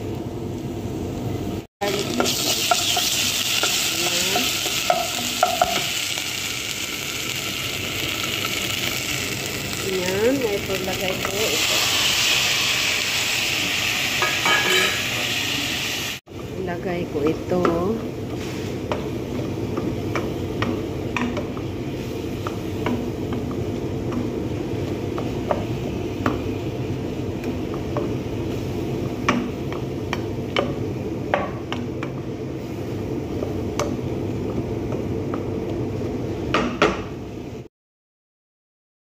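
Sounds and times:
wooden spatula scraping metal pot: 17.2s - 19.5s.

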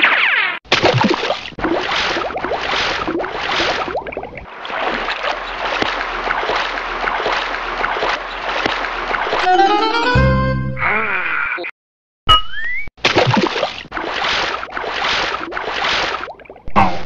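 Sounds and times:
water sloshing and gurgling: 0.6s - 9.5s, 13.0s - 17.0s
bubbling water: 0.9s - 7.9s, 13.3s - 17.0s.

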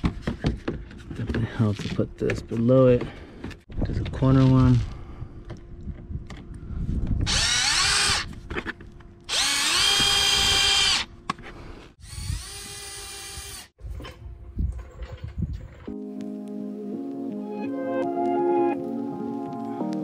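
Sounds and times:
cordless drill motor whine: 7.2s - 8.3s, 9.3s - 11.1s, 12.0s - 13.8s.

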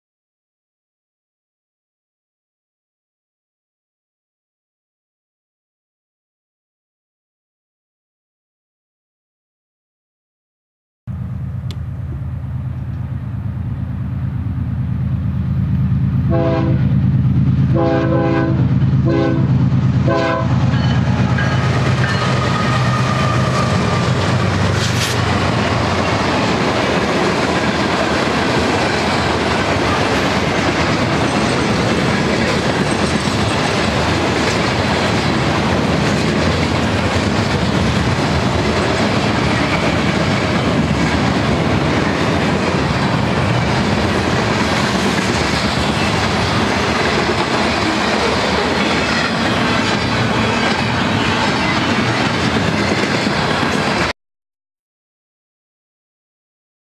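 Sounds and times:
diesel locomotive engines rumbling: 11.1s - 54.1s
train air horn blasts: 16.2s - 17.0s, 17.7s - 20.7s
train wheels clattering over rails: 19.7s - 54.1s.

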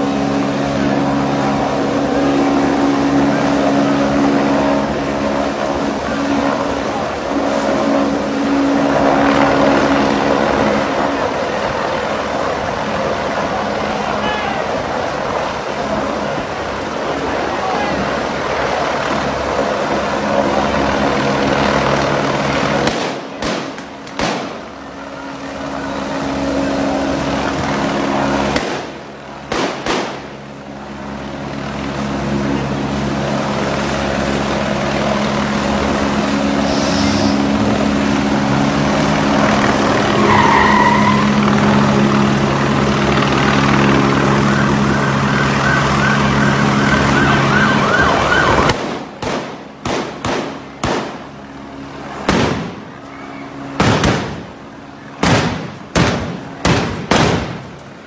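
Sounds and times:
engine drone: 0.0s - 58.0s
siren-like whoop: 40.1s - 41.6s, 44.3s - 48.7s.

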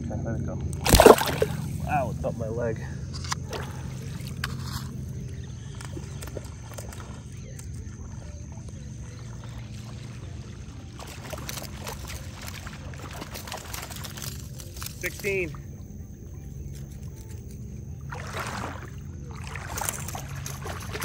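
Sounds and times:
steady low rumble: 0.0s - 10.9s
fish thrashing and splashing: 0.8s - 2.2s, 3.4s - 21.0s.

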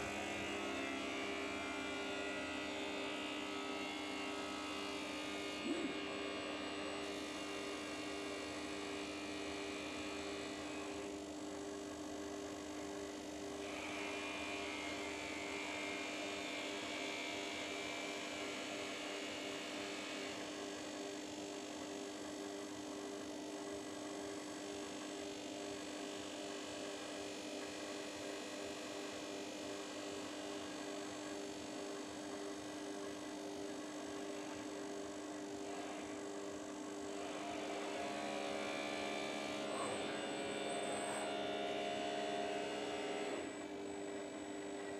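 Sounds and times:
bench grinder humming: 0.0s - 11.2s, 35.4s - 44.9s.

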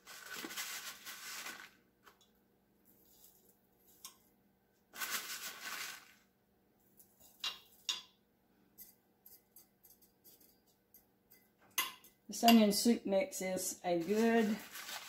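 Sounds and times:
paper envelope rustling: 0.0s - 1.8s, 5.0s - 6.2s, 14.0s - 15.0s.

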